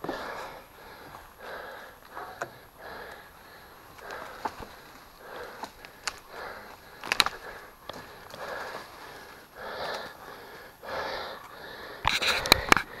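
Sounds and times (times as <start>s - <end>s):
person breathing hard: 0.0s - 13.0s
sharp clicks: 5.6s - 8.4s.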